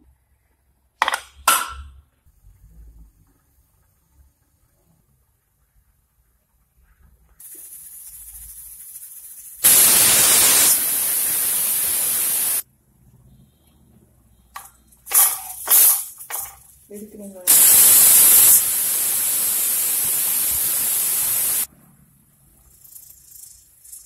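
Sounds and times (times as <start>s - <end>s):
pressure cooker hissing steam: 7.4s - 12.6s, 14.6s - 16.5s, 17.5s - 21.7s
short bursts of sound: 9.6s - 12.6s, 17.5s - 21.7s.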